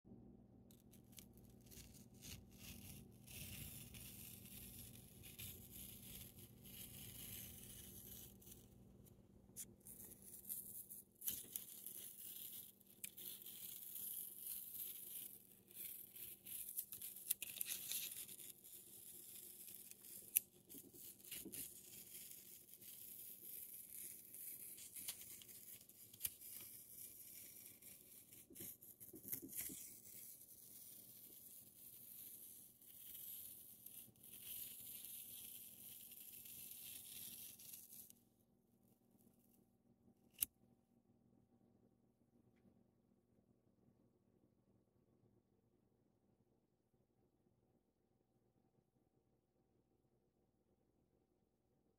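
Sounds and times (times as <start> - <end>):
tape peeling off paper: 9.6 - 38.1.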